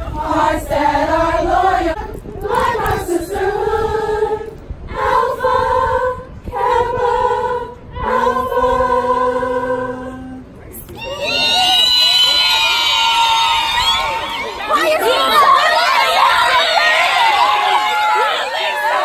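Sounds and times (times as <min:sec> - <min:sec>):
women singing a cappella: 0:00.0 - 0:10.6.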